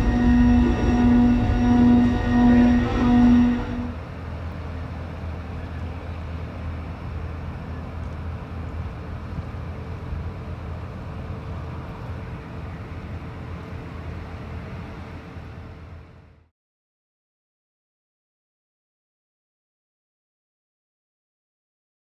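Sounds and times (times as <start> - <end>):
ship machinery rumbling: 0.0 - 15.5.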